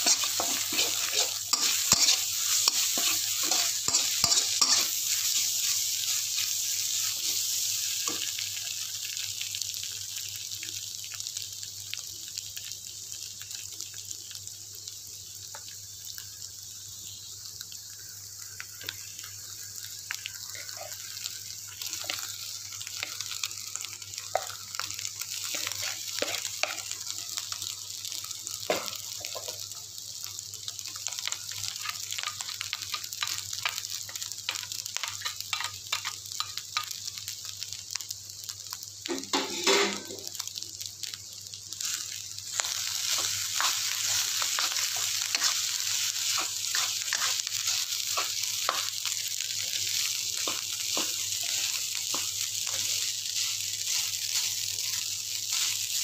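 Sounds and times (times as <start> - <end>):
metal spatula scraping wok: 0.0 - 5.0
food sizzling in wok: 0.0 - 56.0.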